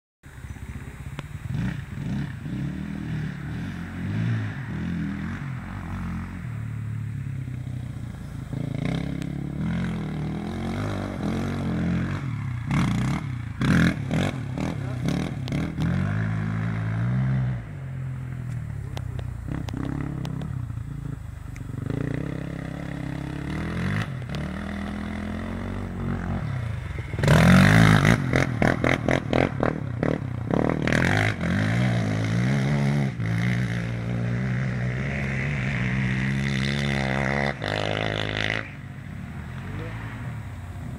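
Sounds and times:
quad engine revving: 0:01.1 - 0:06.5, 0:08.4 - 0:17.8, 0:18.5 - 0:38.9.

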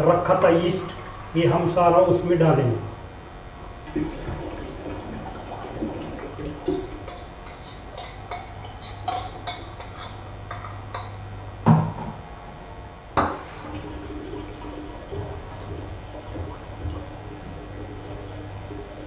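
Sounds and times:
spoon scraping steel bowl: 0:06.6 - 0:11.2
steel cookware clanks: 0:06.7 - 0:11.2.

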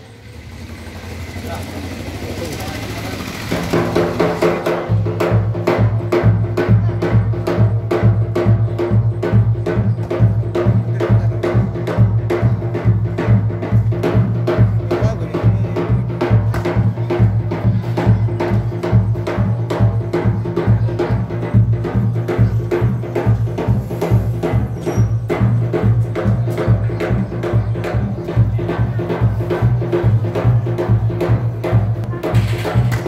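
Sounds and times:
large drum beaten fast: 0:00.1 - 0:33.0.

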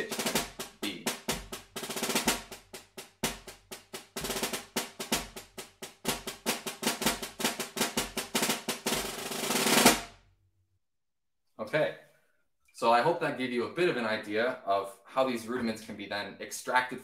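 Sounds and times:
snare drum rolls: 0:00.0 - 0:10.2.

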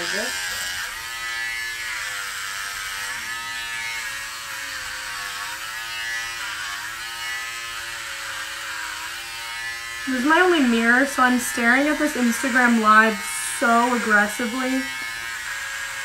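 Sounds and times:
electric hair clippers buzzing: 0:00.0 - 0:16.0.

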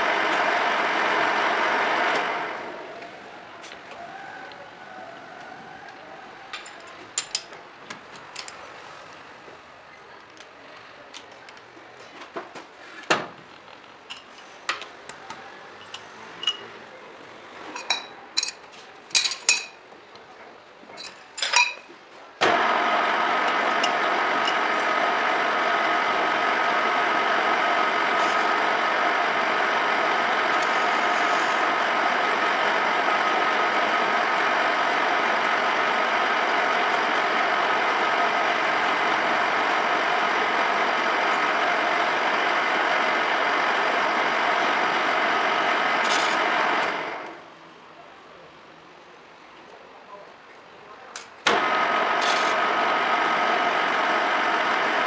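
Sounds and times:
metal lathe running with hum: 0:00.0 - 0:03.6, 0:22.4 - 0:47.4, 0:51.5 - 0:55.0.

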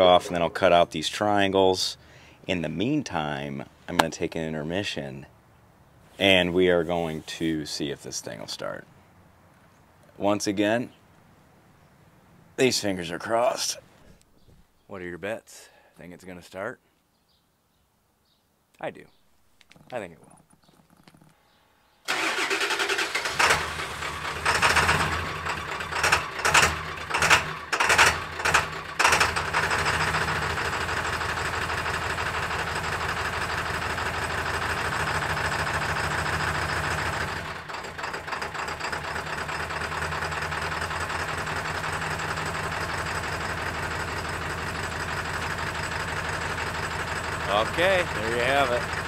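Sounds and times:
diesel engine surging and idling: 0:22.1 - 0:49.0.

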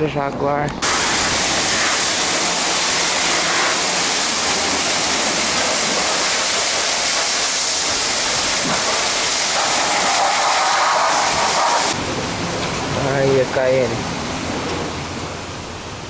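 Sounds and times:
high-pressure water jet hissing: 0:00.8 - 0:12.0.

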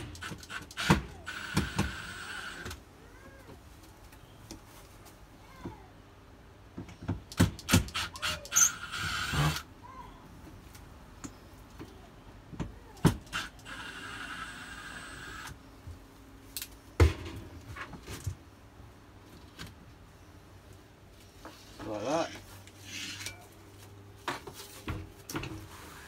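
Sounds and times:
cordless drill whirring: 0:00.0 - 0:02.8, 0:07.8 - 0:09.7, 0:13.3 - 0:15.6.

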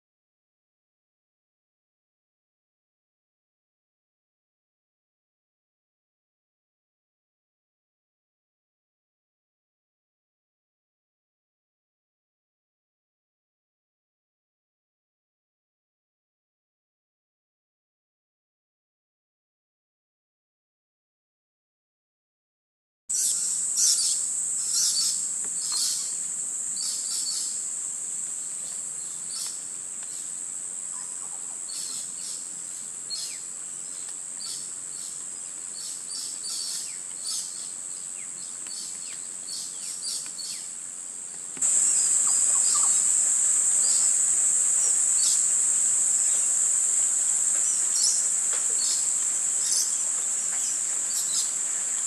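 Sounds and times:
high-pitched insect drone: 0:23.2 - 0:32.5, 0:41.6 - 0:52.0
short bird chirps: 0:41.8 - 0:43.0.

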